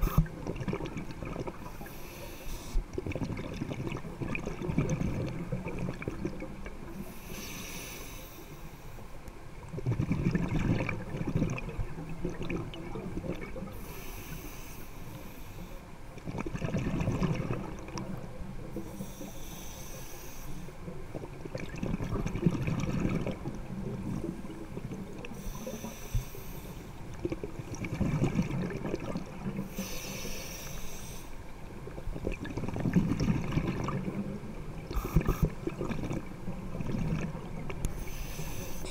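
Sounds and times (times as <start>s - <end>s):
exhaled bubbles rumbling: 0.0s - 1.9s, 2.8s - 7.0s, 9.5s - 13.8s, 16.1s - 18.9s, 20.8s - 25.7s, 27.0s - 29.7s, 31.6s - 38.0s
regulator inhale hiss: 1.6s - 2.9s, 7.0s - 9.2s, 13.7s - 15.9s, 18.8s - 20.8s, 25.4s - 27.0s, 29.6s - 31.4s, 37.9s - 38.9s.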